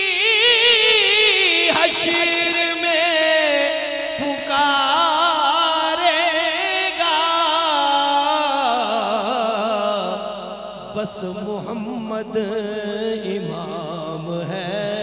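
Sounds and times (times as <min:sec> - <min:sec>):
person singing with vibrato: 0:00.0 - 0:15.0.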